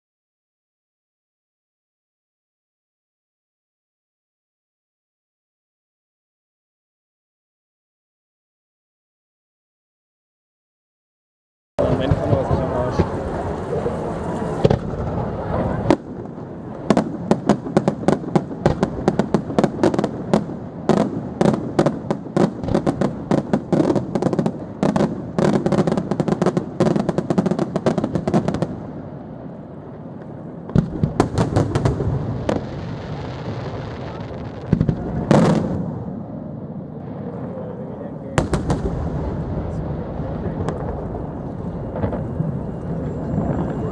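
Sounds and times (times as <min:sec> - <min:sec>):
fireworks bangs and crackling: 0:11.8 - 0:43.9.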